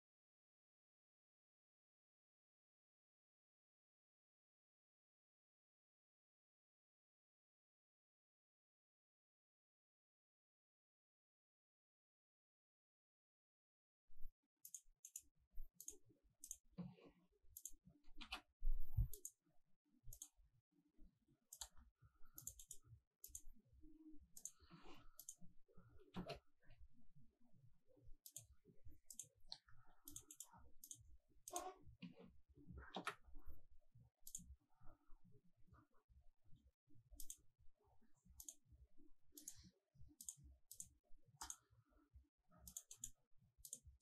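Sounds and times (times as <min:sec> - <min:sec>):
computer mouse clicking: 0:14.6 - 0:17.0, 0:17.6 - 0:19.4, 0:20.1 - 0:20.3, 0:21.5 - 0:23.5, 0:24.4 - 0:25.5, 0:28.2 - 0:28.5, 0:29.1 - 0:31.7, 0:34.2 - 0:34.5, 0:37.2 - 0:37.4, 0:38.4 - 0:38.6, 0:39.4 - 0:41.6, 0:42.7 - 0:44.0.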